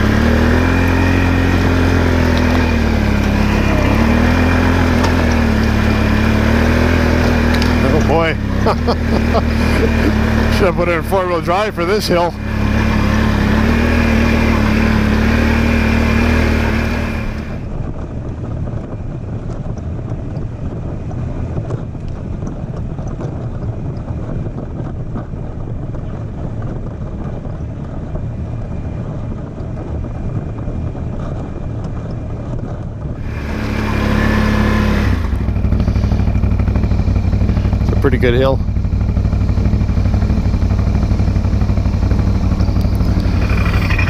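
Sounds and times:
atv engine climbing: 0.0 - 44.0.

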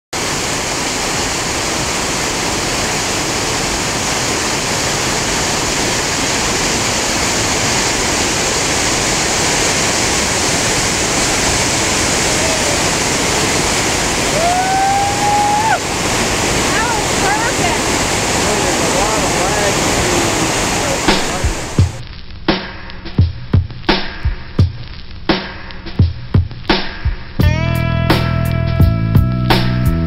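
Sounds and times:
whitewater rapids rushing: 0.2 - 22.0
brief rising shout: 12.2 - 13.2, 14.3 - 15.9.

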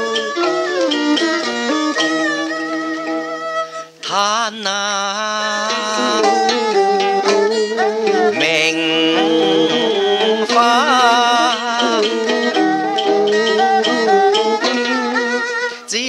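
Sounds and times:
plucked zither: 0.0 - 4.2, 5.5 - 16.0
bowed fiddle melody: 0.0 - 16.0.

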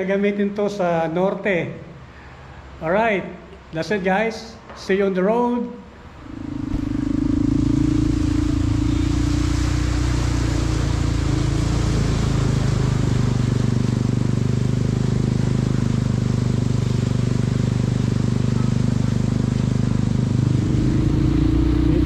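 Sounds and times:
wind and road noise: 5.9 - 18.7
motorcycle engine running: 6.0 - 22.0.

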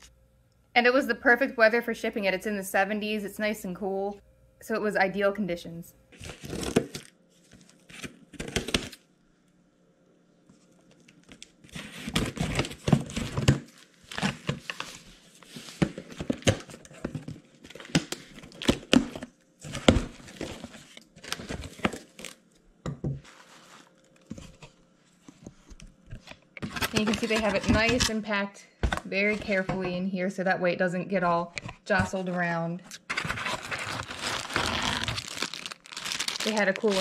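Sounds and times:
scissors cutting packing tape: 33.0 - 37.0.

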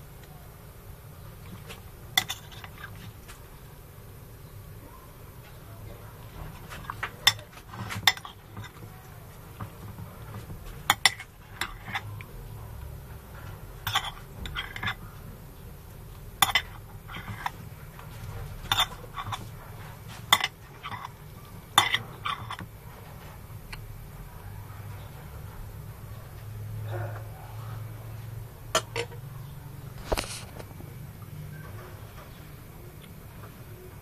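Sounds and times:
low steady hum: 0.0 - 34.0
cutlery clinking on plate: 13.9 - 15.0, 16.4 - 17.6, 21.8 - 22.6, 28.8 - 29.2.

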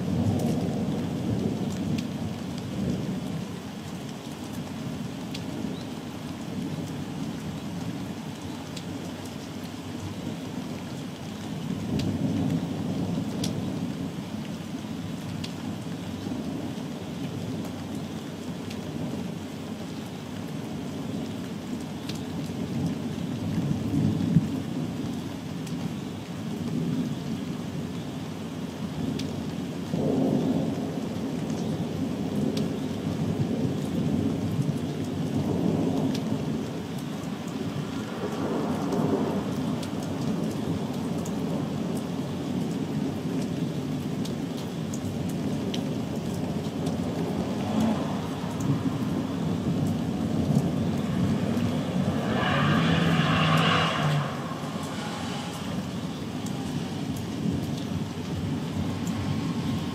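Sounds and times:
steady falling rain: 0.0 - 59.9
sharp raindrop ticks: 0.2 - 25.9, 31.4 - 31.7, 32.4 - 32.8, 33.8 - 59.9
rolling thunder: 46.4 - 59.9.

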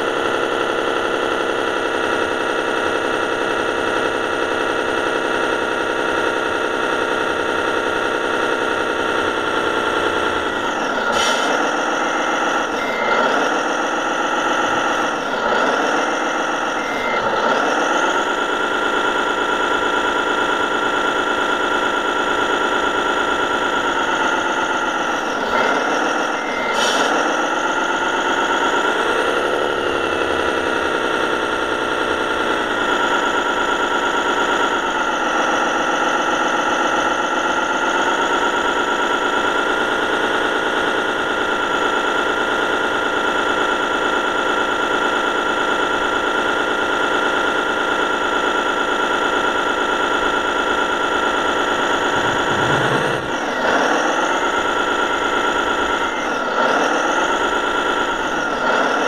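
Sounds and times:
model truck engine sound from speaker: 0.0 - 59.0.

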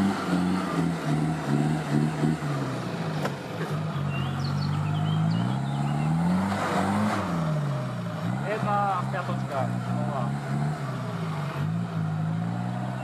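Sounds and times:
off-road vehicle engine revving: 0.0 - 13.0.

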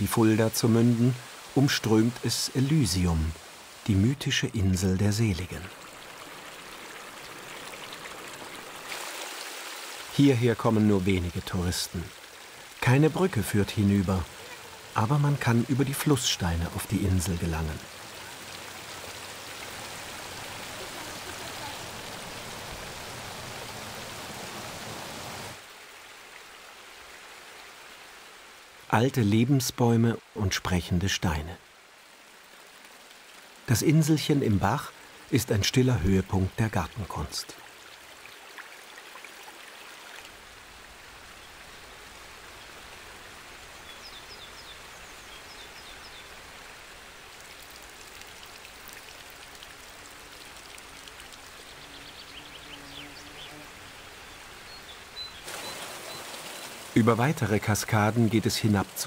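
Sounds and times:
stream water splashing over stones: 5.0 - 27.1, 36.0 - 59.0.

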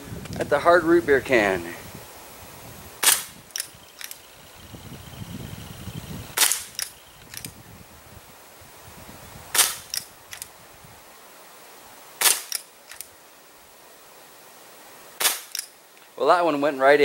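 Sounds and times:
pellet gun shots: 3.0 - 3.3, 6.4 - 6.8, 9.6 - 9.9, 12.2 - 12.6, 15.2 - 15.6
faint clicks: 3.5 - 4.2, 6.4 - 7.6, 12.5 - 13.1.

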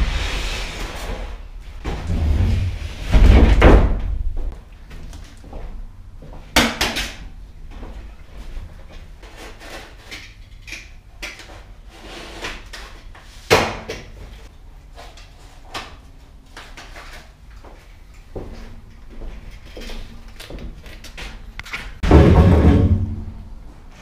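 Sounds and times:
footsteps on wooden subfloor: 17.6 - 19.9.

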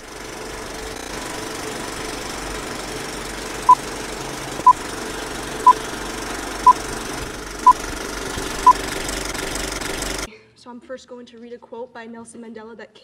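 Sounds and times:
mechanical rattle: 0.0 - 10.3.

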